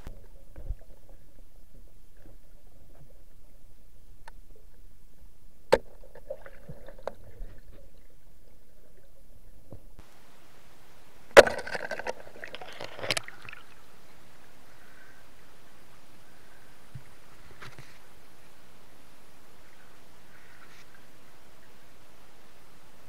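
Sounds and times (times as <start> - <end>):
crackling bubbling water: 0.0 - 10.2, 11.3 - 14.0.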